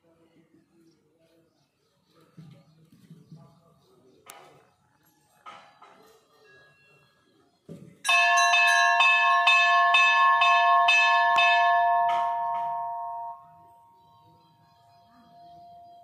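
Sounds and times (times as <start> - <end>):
metal temple bell struck: 8.1 - 14.1.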